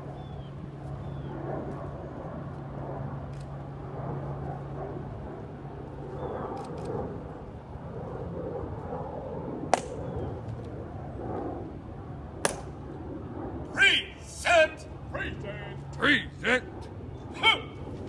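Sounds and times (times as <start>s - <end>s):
low diffuse murmur: 0.0s - 18.0s
steady low hum: 0.0s - 18.0s
sharp snap: 9.7s - 10.0s, 12.4s - 12.7s.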